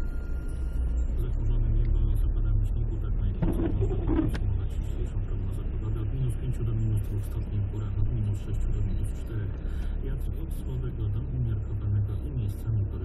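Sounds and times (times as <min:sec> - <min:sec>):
car driving on slushy road: 0:00.6 - 0:13.0
windscreen wiper sweeping: 0:03.4 - 0:04.4.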